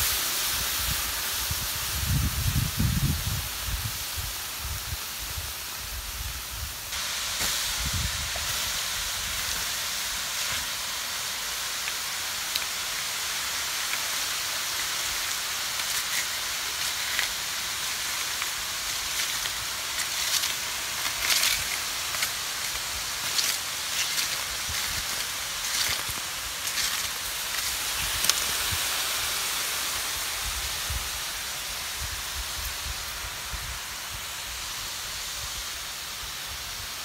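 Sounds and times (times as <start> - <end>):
hot charcoal and stones hissing: 0.0 - 37.0
stones clicking from raking stick: 15.6 - 28.4.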